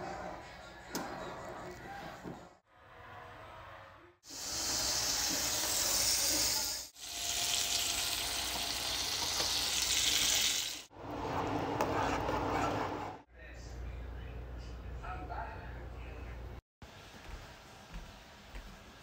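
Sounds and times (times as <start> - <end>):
fish sizzling in hot oil: 4.3 - 10.9.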